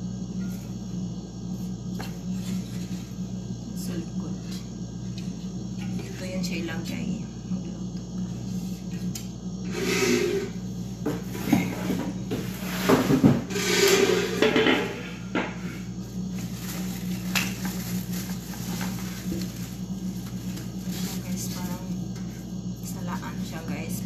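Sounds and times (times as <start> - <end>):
steady low hum: 0.0 - 24.0
plastic wrapping rustling: 16.3 - 21.8.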